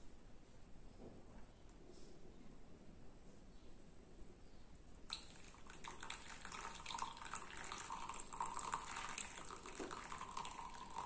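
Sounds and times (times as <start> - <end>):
coffee trickling: 5.1 - 11.0
water pouring and splashing: 5.1 - 11.0.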